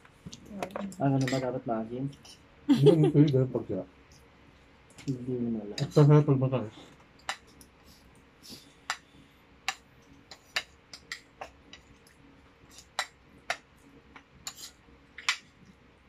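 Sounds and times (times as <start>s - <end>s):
cutlery clinking on plates: 1.2s - 1.5s.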